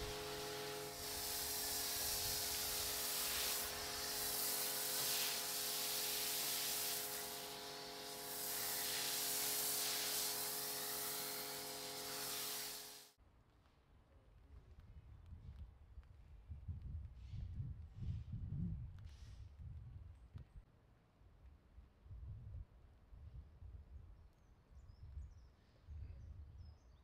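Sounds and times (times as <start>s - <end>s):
steady hum: 0.0s - 13.1s
pressure washer spraying foam: 0.0s - 13.2s.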